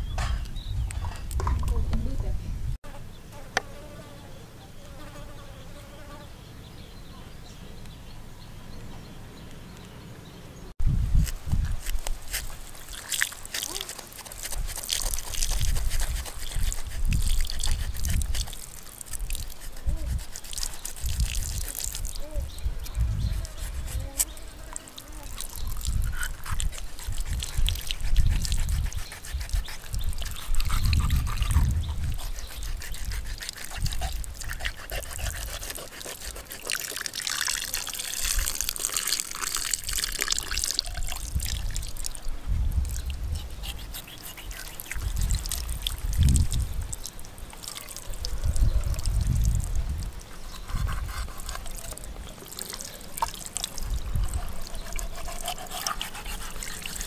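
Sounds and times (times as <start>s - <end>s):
knife cutting flesh: 11.2s - 22.2s, 22.8s - 42.0s, 43.3s - 46.4s, 50.3s - 57.0s
water trickling and splashing: 11.5s - 57.0s.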